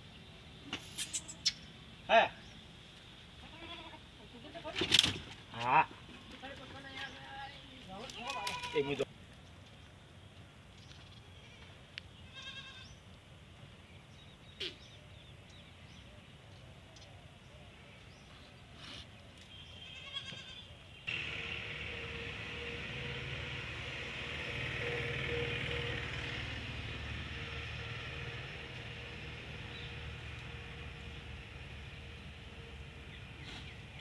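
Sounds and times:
steady hiss with low hum: 0:00.0 - 0:06.5
sheep and goats bleating: 0:03.4 - 0:04.0, 0:08.1 - 0:09.1, 0:12.3 - 0:13.0, 0:19.8 - 0:20.7.

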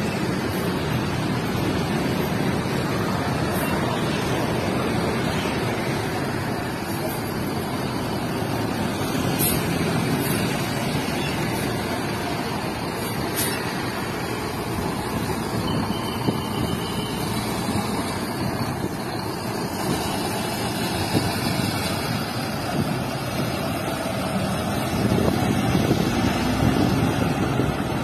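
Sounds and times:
bus engine pulling away: 0:00.0 - 0:28.0
road traffic noise: 0:00.0 - 0:28.0.

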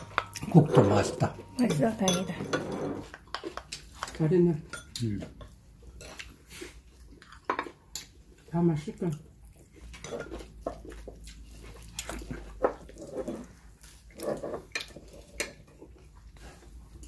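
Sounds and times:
tableware clinking: 0:00.0 - 0:03.2.

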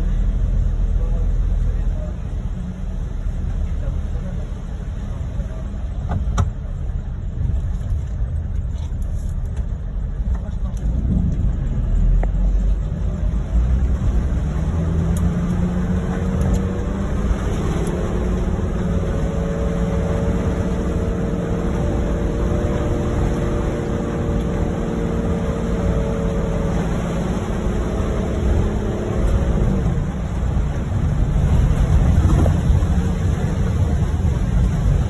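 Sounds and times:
car engine and tyres rumbling: 0:00.0 - 0:35.0
rain and water hiss: 0:10.8 - 0:35.0.

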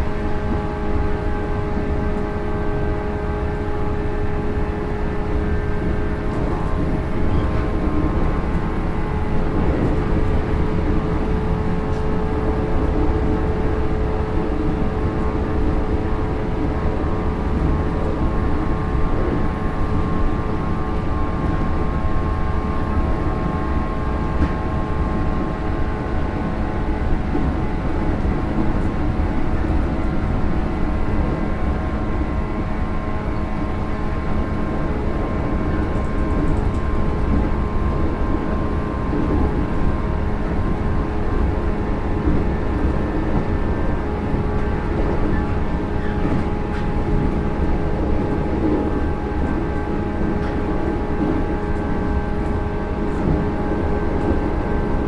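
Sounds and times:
wheels rumbling on rail: 0:00.0 - 0:55.0.

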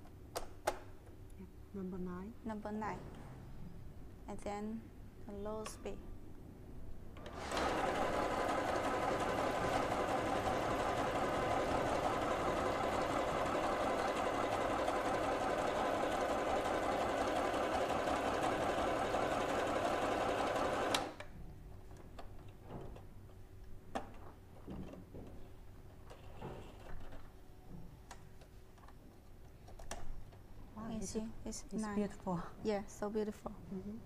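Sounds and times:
sewing machine running: 0:07.2 - 0:21.2.

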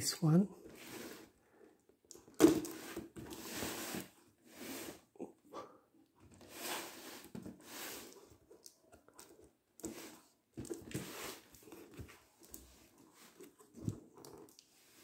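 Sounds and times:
cardboard rustling and scraping: 0:00.6 - 0:01.4, 0:02.4 - 0:05.1, 0:09.2 - 0:15.0.

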